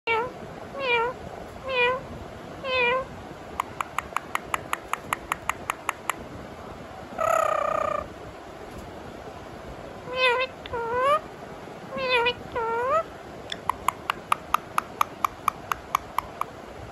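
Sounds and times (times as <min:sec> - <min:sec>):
parrot mimicking cat meow: 0:00.1 - 0:02.0, 0:02.6 - 0:04.2, 0:07.2 - 0:08.1, 0:10.1 - 0:11.2, 0:11.9 - 0:16.5
parrot clicking chirps: 0:03.6 - 0:06.2, 0:13.5 - 0:16.6.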